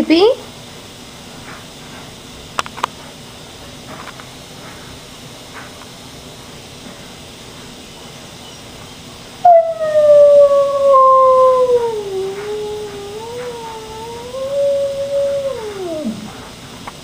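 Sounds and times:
dog howling: 9.4 - 16.6.

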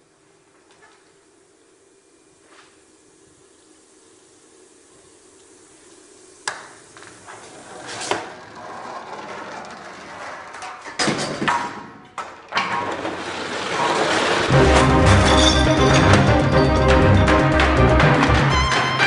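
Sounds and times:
plastic crate sliding on wood: 7.2 - 10.8, 12.7 - 14.5
metal kegs rolling and rattling: 7.2 - 19.0.

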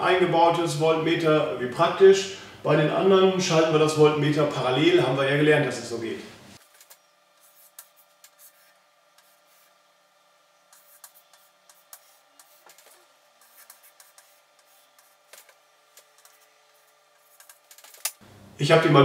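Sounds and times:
chalk scratching on chalkboard: 7.4 - 9.8, 10.7 - 15.5.

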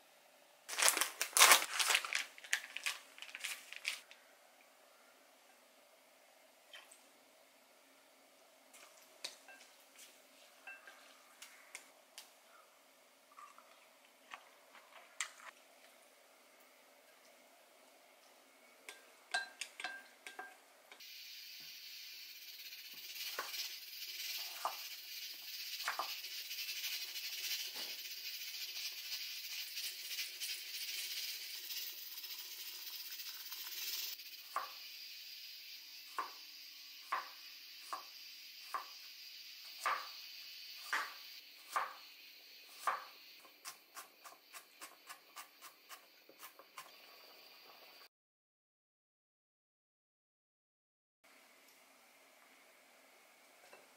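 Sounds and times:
utensils clicking on glass bowl: 18.9 - 20.6
water pouring into saucepan: 22.9 - 34.2.

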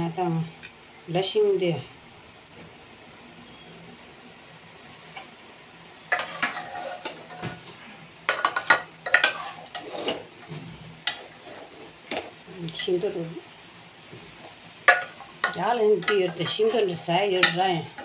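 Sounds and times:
utensils clattering against cookware: 6.1 - 7.6, 8.3 - 10.3, 14.9 - 18.0.

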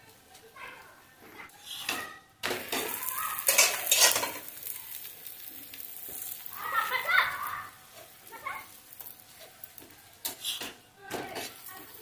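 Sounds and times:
scraping against pan: 1.5 - 4.7, 9.0 - 12.0
flatbread sizzling in oil: 1.5 - 12.0.

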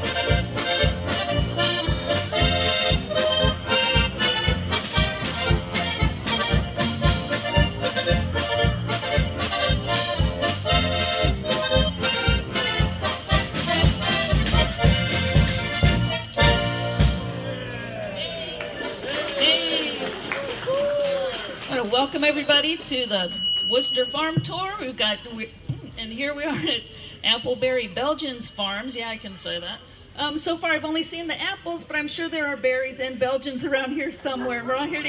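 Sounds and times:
button accordions: 0.0 - 17.4
drum kit: 0.0 - 17.6
bass guitar: 0.0 - 18.4
polka band playing: 0.0 - 19.6.

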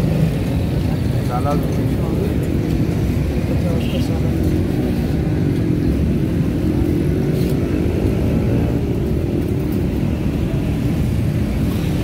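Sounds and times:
road traffic rumble: 0.0 - 12.0.

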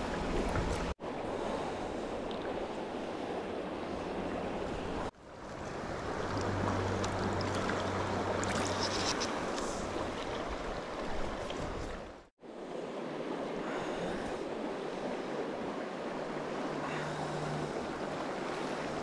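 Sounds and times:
small water splashes: 5.1 - 12.2.

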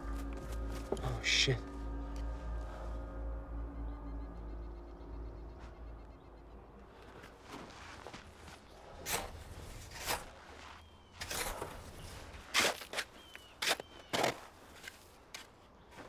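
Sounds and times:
snow crunching and scraping: 0.0 - 1.9, 6.9 - 16.0.

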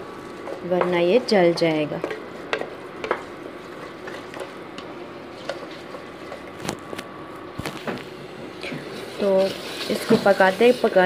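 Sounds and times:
spatula knocking and scraping pan: 0.4 - 6.5, 8.7 - 11.0
food hissing while cooking: 8.2 - 11.0.

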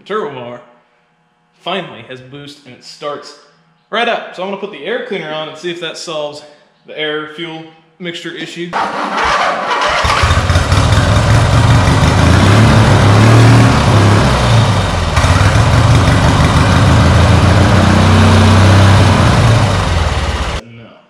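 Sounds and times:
lawn tractor engine surging: 8.8 - 20.6.

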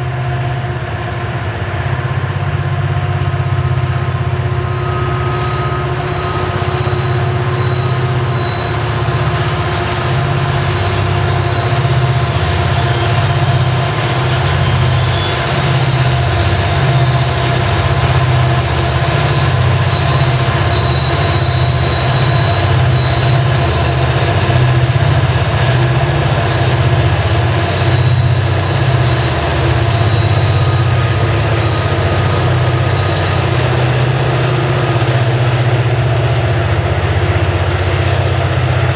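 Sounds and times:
diesel locomotives passing: 0.0 - 38.9
train wheels rumbling on rail: 0.0 - 38.9
wheel squeal: 3.1 - 38.9.

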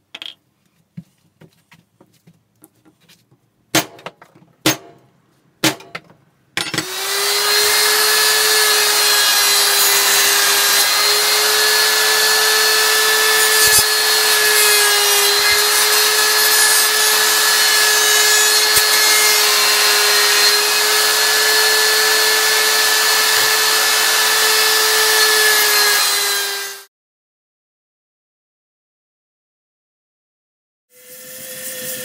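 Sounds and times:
electric router whining: 6.8 - 26.9
router bit rasping wood: 6.8 - 26.9.

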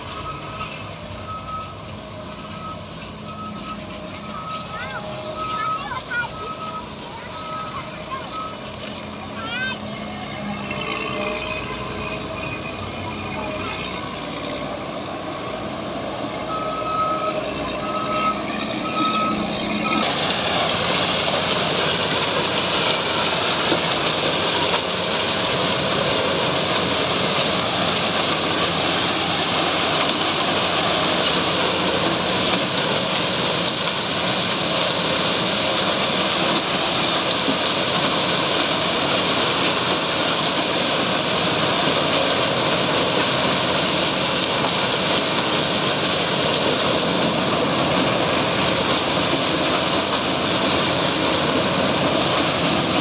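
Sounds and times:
reversing alarm beeping: 0.0 - 9.7, 16.3 - 20.9.

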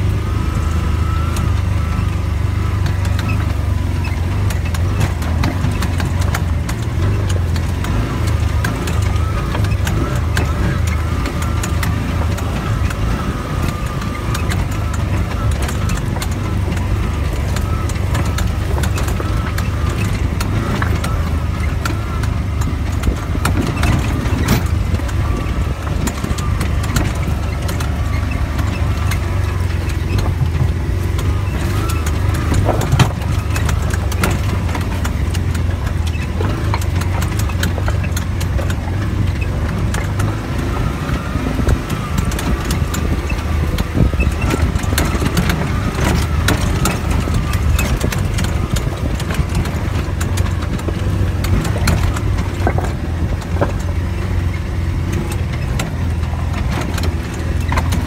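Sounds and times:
clicks and rattles over stones: 0.0 - 58.0
off-road vehicle engine running: 0.0 - 58.0.

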